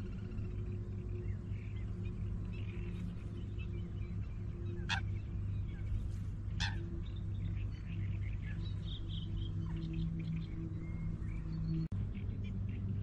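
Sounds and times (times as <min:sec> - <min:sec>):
birds chirping: 0:00.0 - 0:13.0
steady low drone: 0:00.0 - 0:13.0
sharp downward bird calls: 0:06.6 - 0:06.8.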